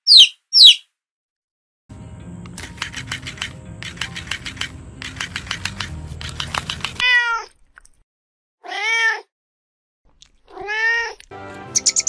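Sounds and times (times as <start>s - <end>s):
rapid clicks: 2.5s - 7.0s
cat meowing: 7.0s - 7.5s, 8.6s - 9.3s, 10.5s - 11.3s.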